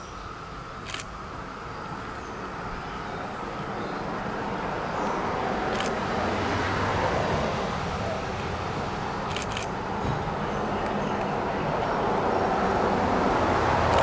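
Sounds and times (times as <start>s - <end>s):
short clicks: 9.3s - 9.7s.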